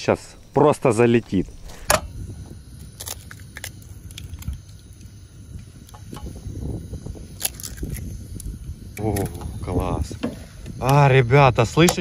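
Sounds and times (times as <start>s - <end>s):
gas burner rushing: 0.0s - 12.0s
butter sizzling: 0.2s - 12.0s
eggshells cracking: 2.8s - 5.1s, 7.3s - 9.5s.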